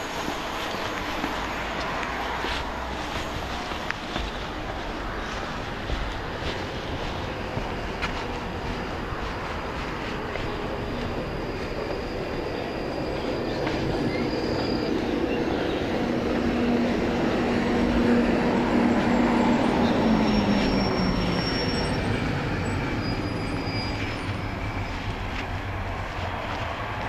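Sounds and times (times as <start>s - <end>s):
train wheels rumbling on track: 0.0s - 27.0s
faint high squeals: 8.7s - 26.4s.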